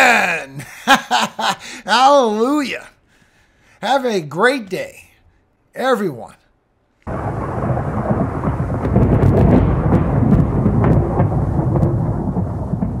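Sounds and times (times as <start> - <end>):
rain: 7.1 - 13.0
rumbling thunder: 7.1 - 13.0
sharp thunder crackles: 7.1 - 13.0.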